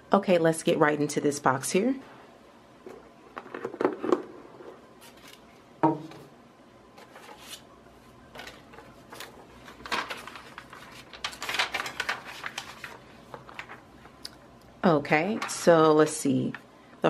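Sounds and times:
tissue paper crinkling: 8.3s - 14.2s.

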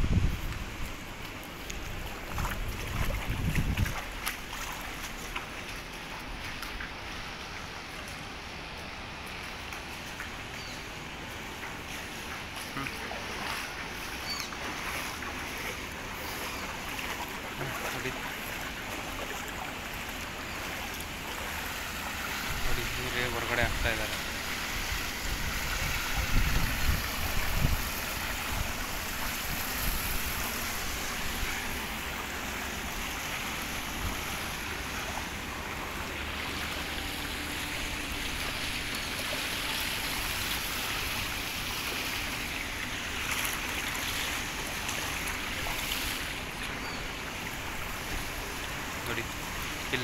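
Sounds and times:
wind buffeting microphone: 0.0s - 4.6s, 24.7s - 31.9s
floodwater rushing: 0.0s - 50.0s.

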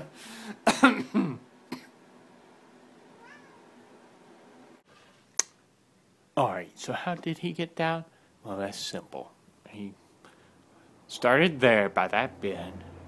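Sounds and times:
cat meowing: 3.2s - 3.6s.

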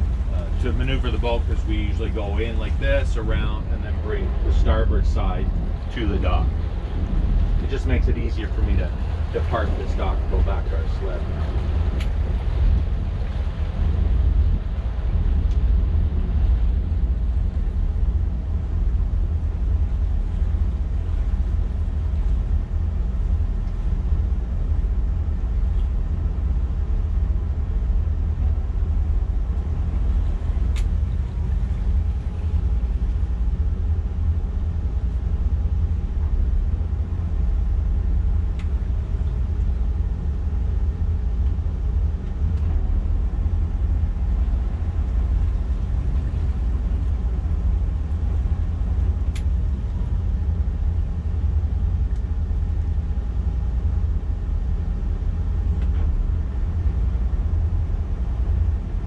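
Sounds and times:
boat engines rumbling: 0.0s - 59.0s.

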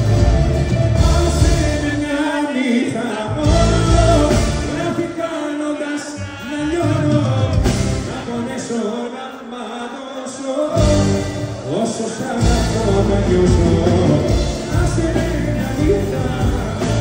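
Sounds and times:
heavy bass: 0.0s - 2.3s, 3.3s - 5.0s, 10.8s - 17.0s
live band music with singing: 0.0s - 17.0s.

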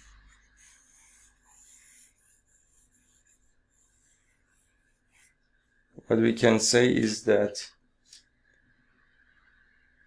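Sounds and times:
stylus scratching drawing tablet: 0.0s - 5.8s.

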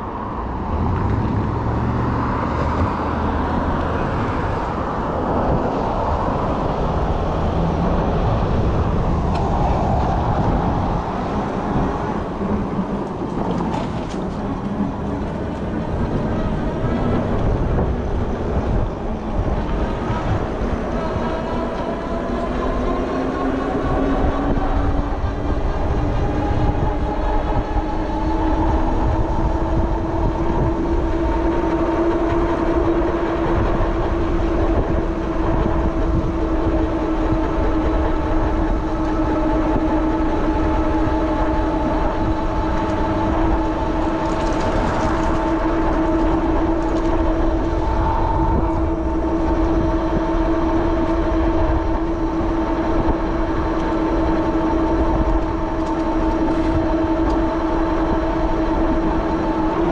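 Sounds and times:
wind rumble on microphone: 0.0s - 59.9s
electric bike motor whine: 13.7s - 59.9s.

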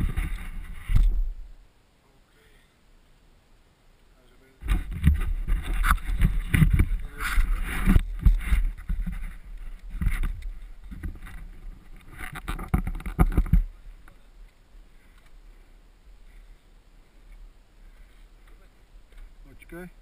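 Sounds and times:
bike tyres rumbling on dirt: 0.0s - 1.6s, 4.6s - 14.1s
sharp knocks over bumps: 4.6s - 13.7s.

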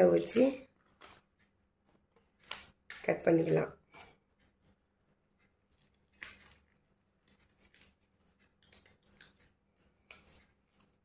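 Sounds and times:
scissors snipping card: 2.4s - 3.7s.

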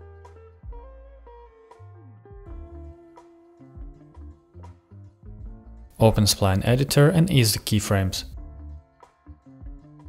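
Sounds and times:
guitar music with bass and beat: 0.0s - 5.9s.

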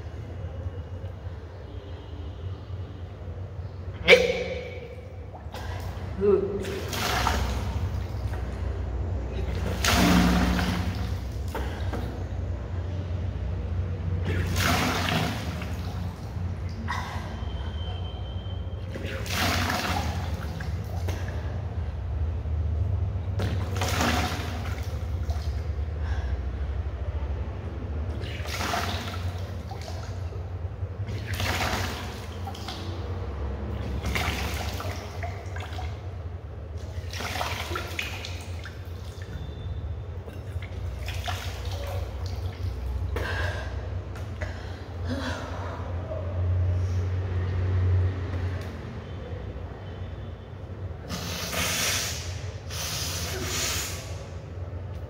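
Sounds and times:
water splashing from mouth: 4.0s - 12.4s, 14.1s - 21.8s, 28.0s - 36.2s.

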